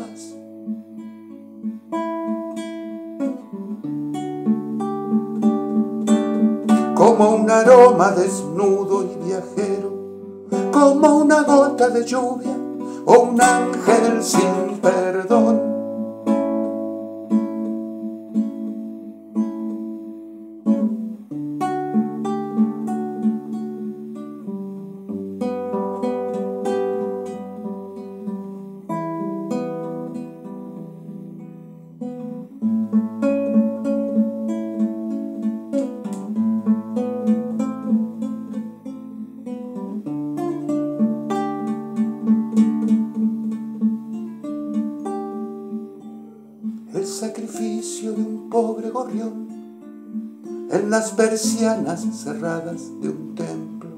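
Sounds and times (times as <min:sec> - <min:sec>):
acoustic guitar folk music: 0:00.0 - 0:53.9.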